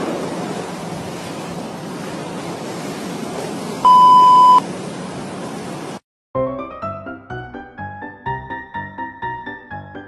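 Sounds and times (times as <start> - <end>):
loud electronic beep: 3.9 - 4.6.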